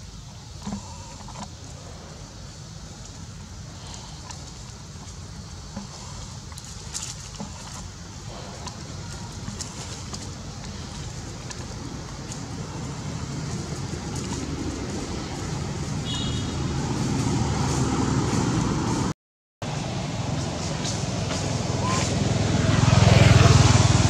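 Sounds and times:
vehicle engine rumbling: 0.0s - 24.0s
footsteps on dry leaves: 6.0s - 19.1s.

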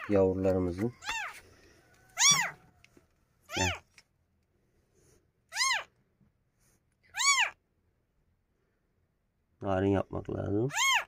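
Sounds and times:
kitten mewing: 1.0s - 1.4s, 2.2s - 2.6s, 3.5s - 3.9s, 5.5s - 5.9s, 7.1s - 7.6s, 10.7s - 11.0s.

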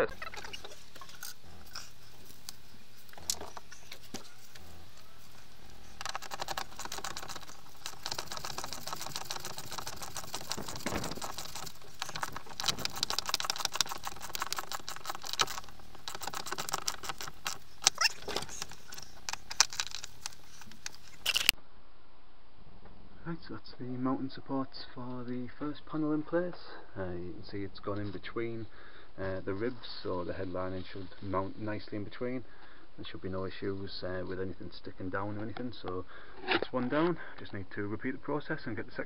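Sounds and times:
rapid metallic clicking: 4.6s - 21.1s.

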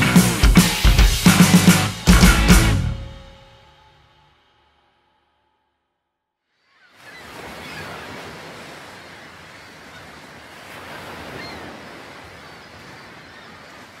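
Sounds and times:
ocean surf on beach: 6.8s - 14.0s.

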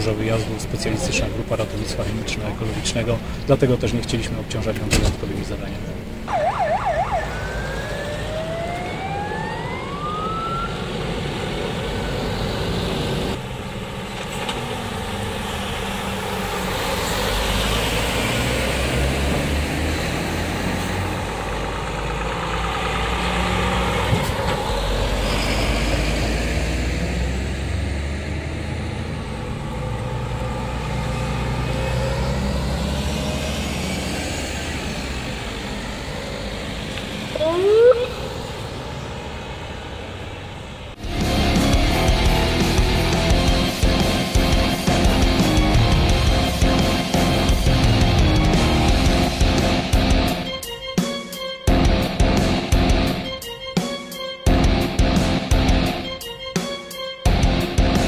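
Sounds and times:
fire engines driving past: 0.0s - 50.9s
siren winding up: 6.2s - 12.6s, 36.9s - 38.6s.

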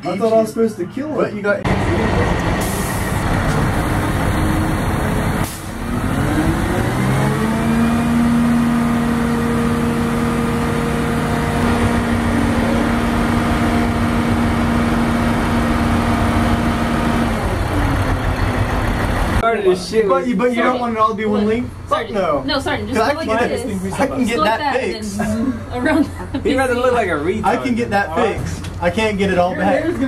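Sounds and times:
truck diesel engine revving: 1.7s - 19.4s.

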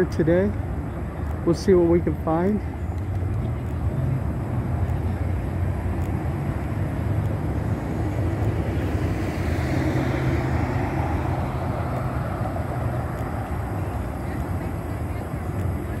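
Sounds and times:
street traffic rumble: 0.0s - 16.0s
vehicle passing close: 3.2s - 15.4s.

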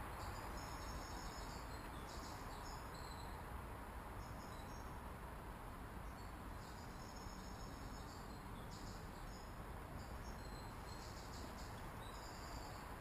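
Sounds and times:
crickets chirping: 6.2s - 13.0s.

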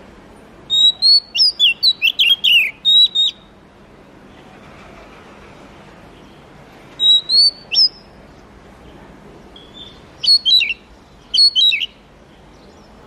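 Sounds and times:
bird whistling song: 0.7s - 3.6s, 7.0s - 8.2s, 9.6s - 13.0s.

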